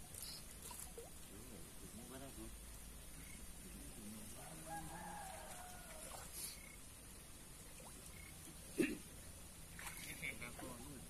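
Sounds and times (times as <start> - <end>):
faint rooster crowing: 4.3 - 6.6.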